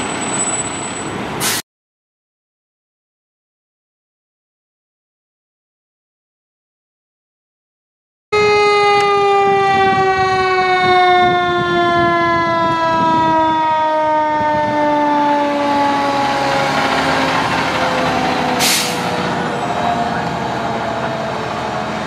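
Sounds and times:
engine and road noise: 0:00.0 - 0:01.6, 0:08.4 - 0:22.0
short burst of hiss: 0:01.4 - 0:01.6, 0:18.6 - 0:19.1
mechanical siren winding down: 0:08.4 - 0:22.0.

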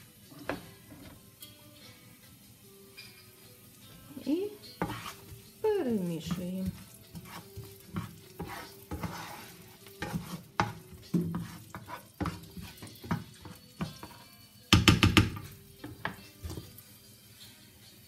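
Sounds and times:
onion sizzling in oil: 0:00.0 - 0:18.0
spatula scraping frying pan: 0:02.9 - 0:14.5, 0:15.3 - 0:16.8.

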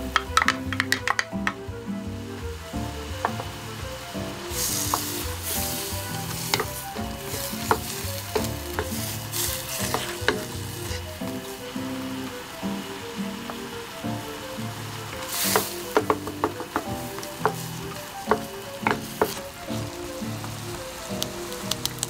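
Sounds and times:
soft background music: 0:00.0 - 0:22.0
wooden spatula stirring: 0:00.1 - 0:01.6, 0:03.2 - 0:12.3, 0:12.9 - 0:22.0
food sizzling in frying pan: 0:02.1 - 0:22.0
sharp ticks: 0:21.1 - 0:22.0.

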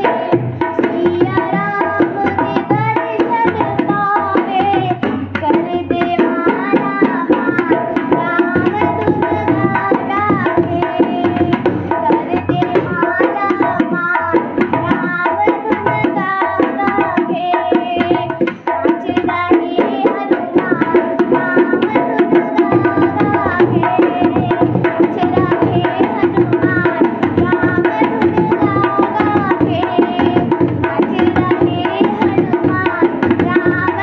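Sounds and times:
barrel drum fast rhythm: 0:00.0 - 0:34.0.

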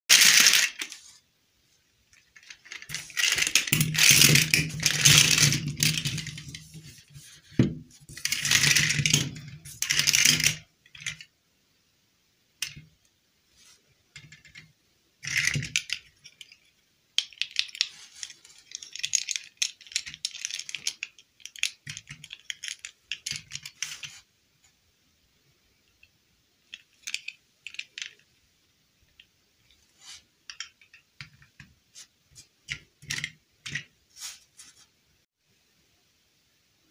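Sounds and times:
plastic pieces clicking and rustling: 0:00.1 - 0:01.1, 0:02.1 - 0:11.3, 0:12.6 - 0:12.8, 0:14.2 - 0:24.2, 0:26.0 - 0:28.4, 0:30.5 - 0:31.7, 0:32.6 - 0:33.9
plastic toys clattering: 0:00.1 - 0:01.2, 0:02.1 - 0:11.3, 0:14.2 - 0:24.2, 0:26.6 - 0:28.4, 0:30.4 - 0:31.7, 0:32.6 - 0:33.9.

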